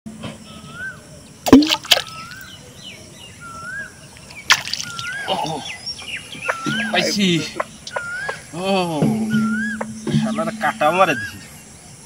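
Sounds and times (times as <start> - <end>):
fish splashing in water: 1.5 - 2.6, 4.3 - 5.5
bird whistling: 2.0 - 2.6, 3.3 - 4.0, 4.7 - 8.6, 9.2 - 11.6.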